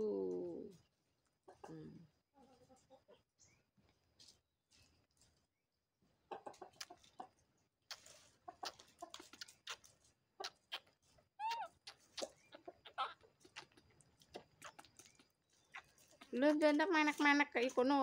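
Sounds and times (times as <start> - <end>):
baby monkeys sucking bottles: 7.8 - 18.0
baby monkey squeak: 10.4 - 16.4.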